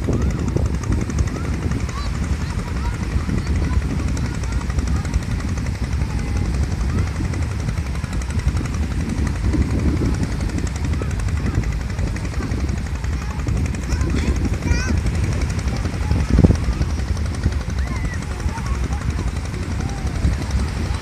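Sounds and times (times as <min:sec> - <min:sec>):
wind buffeting microphone: 0:00.0 - 0:21.0.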